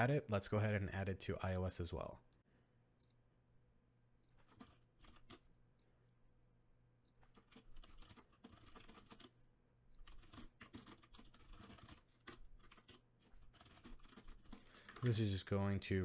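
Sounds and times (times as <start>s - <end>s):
faint keyboard typing: 4.2s - 5.9s, 7.0s - 16.0s.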